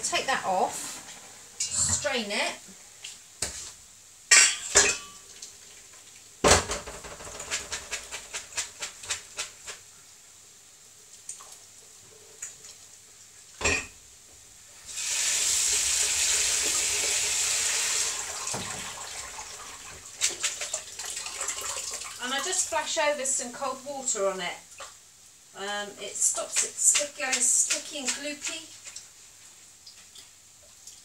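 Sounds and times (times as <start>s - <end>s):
water running into sink: 14.9s - 23.0s.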